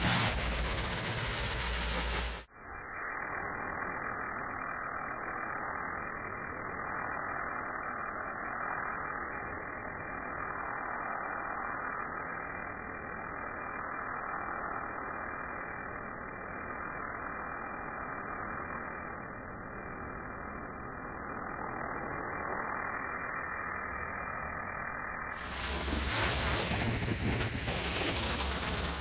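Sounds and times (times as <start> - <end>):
pressure washer spraying stone: 0.0 - 2.5, 25.3 - 29.0.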